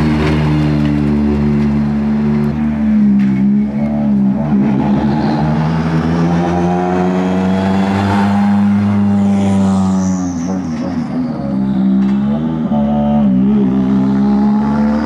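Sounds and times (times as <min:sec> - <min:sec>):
rally car engines passing: 0:00.0 - 0:15.0.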